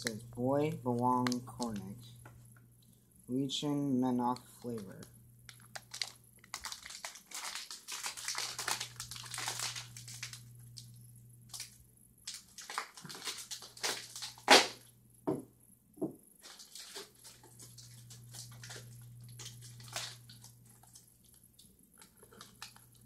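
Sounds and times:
plastic snack bag crinkling: 0.8s - 2.0s, 4.4s - 10.9s, 11.5s - 14.8s, 16.4s - 23.0s.

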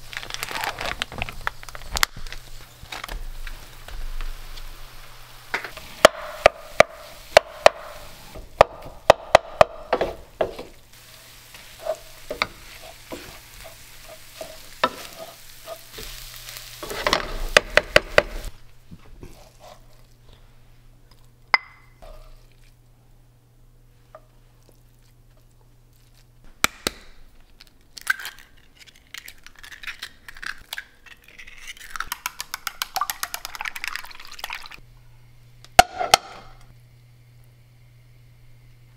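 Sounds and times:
rice sizzling: 0.0s - 22.9s
wooden spoon knocking frying pan: 8.6s - 10.8s, 16.8s - 18.4s
eggs beaten in glass bowl: 31.9s - 34.8s.

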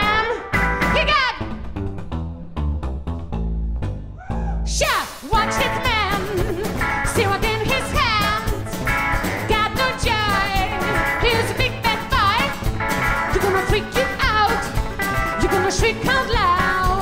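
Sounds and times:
country band playing: 0.0s - 2.0s, 4.8s - 17.0s
person singing: 4.4s - 8.7s, 9.5s - 12.5s, 13.3s - 17.0s
acoustic guitar: 5.3s - 17.0s.

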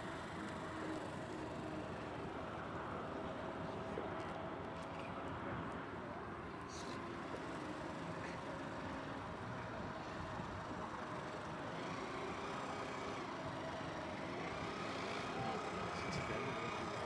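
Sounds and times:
faint distant voices: 5.1s - 17.0s.

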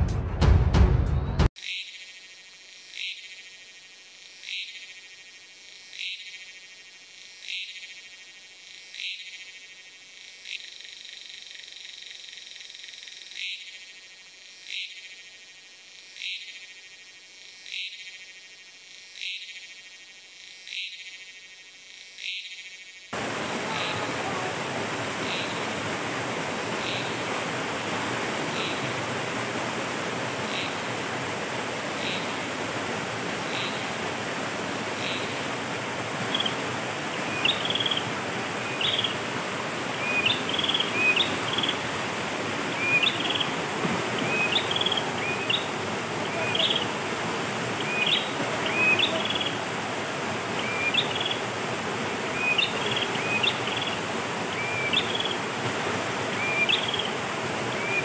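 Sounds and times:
stream flowing: 23.2s - 58.0s.

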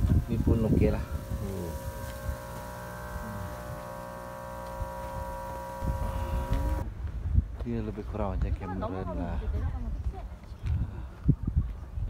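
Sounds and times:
steady electric pump hum: 0.0s - 6.8s.

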